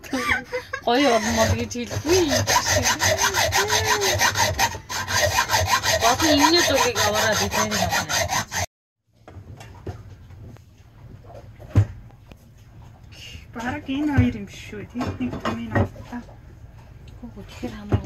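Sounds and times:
hacksaw cutting metal: 0.9 - 8.7.

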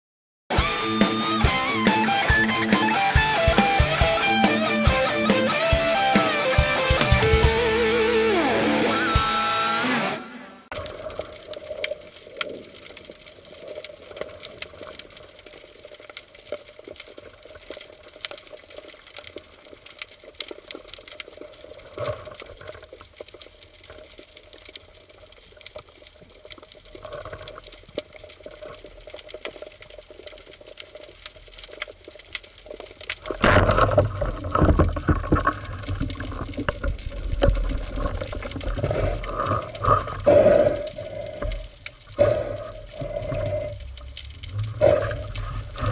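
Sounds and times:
rumbling water-moving noise: 10.6 - 45.9
underwater crackle of clicks: 10.7 - 45.9.

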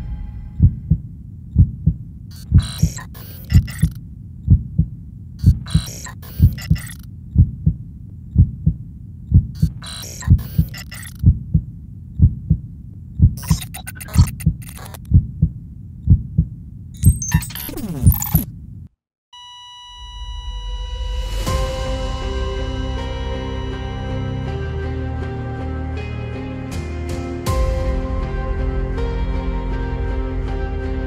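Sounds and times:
heartbeat thumps: 0.0 - 16.6
high crackling noise: 2.3 - 4.0, 5.4 - 7.1, 9.6 - 11.3, 13.4 - 15.2, 17.0 - 18.5.

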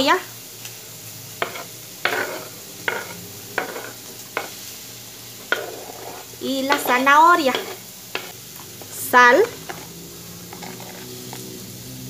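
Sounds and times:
meat sizzling in a pan: 0.0 - 12.0
metal spoon scraping cutting board: 1.4 - 4.5, 5.5 - 6.8, 7.5 - 8.3, 9.4 - 9.9, 10.5 - 11.1.

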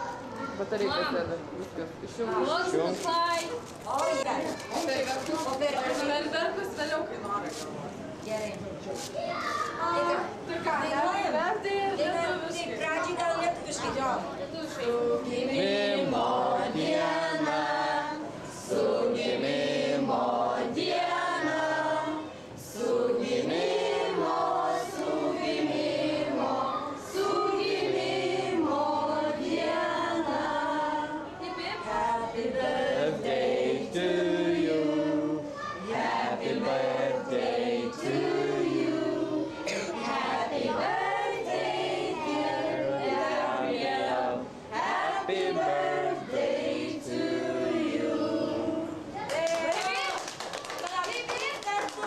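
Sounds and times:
group singing a birthday song: 9.8 - 49.3.

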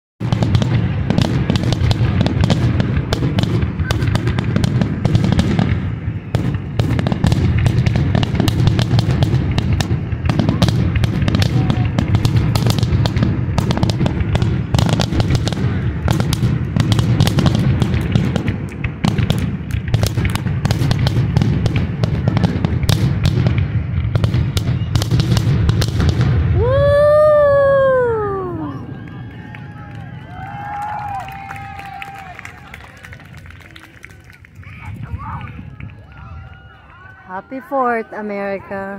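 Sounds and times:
fireworks crackling and popping: 0.2 - 38.7
person cheering whoo: 26.6 - 33.2, 34.6 - 38.2.

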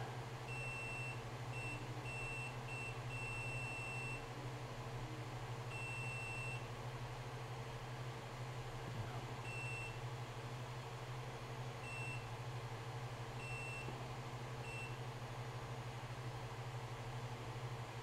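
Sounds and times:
multimeter beeping: 5.7 - 6.7.

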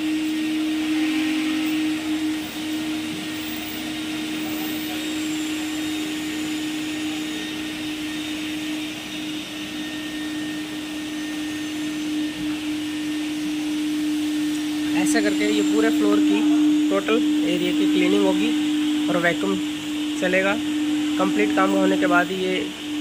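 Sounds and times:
suction hiss of water: 0.0 - 7.6
vacuum motors humming: 0.0 - 23.0.

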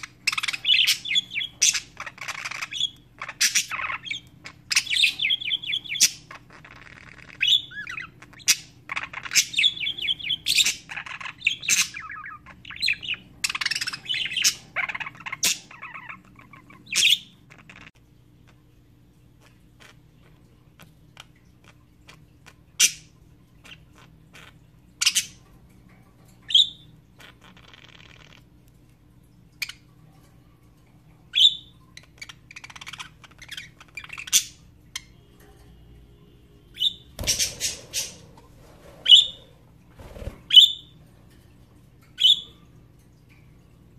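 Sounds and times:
budgerigars chirping and squawking: 0.0 - 18.0, 21.2 - 25.5, 31.3 - 35.2, 36.7 - 41.0, 42.1 - 42.6.

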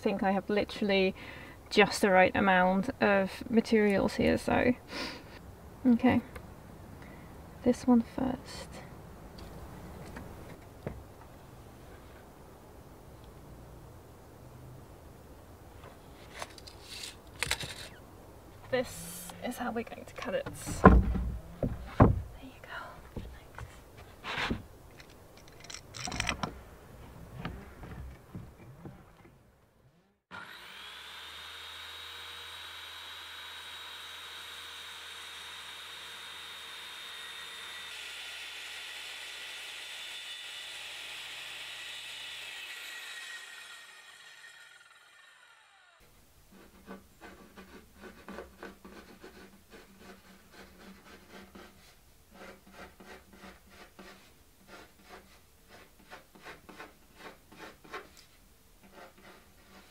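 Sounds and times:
circular saw cutting: 30.3 - 46.0
scraping strokes on board: 46.5 - 59.9.

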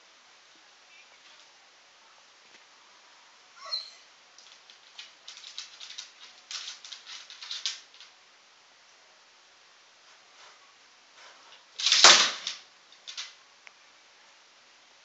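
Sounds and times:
dog whining: 3.6 - 4.1
dog claws scrabbling on wood: 4.4 - 8.1, 11.5 - 13.4.

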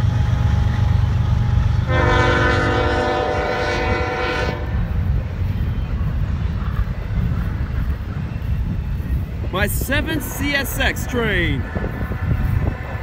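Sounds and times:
freight train rumbling past: 0.0 - 13.0
locomotive air horn blast: 1.9 - 4.8.

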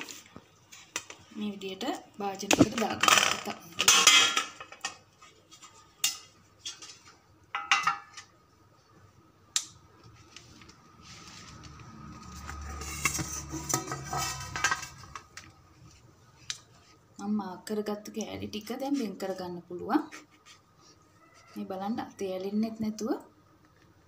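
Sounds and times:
scraping and rustling: 10.1 - 17.0
metal tray clanking on steel plate: 12.8 - 15.2.

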